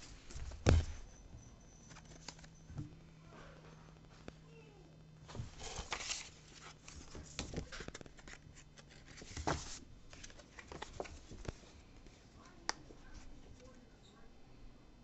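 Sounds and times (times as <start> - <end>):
paper packaging rustling: 1.9 - 2.5, 5.3 - 11.8.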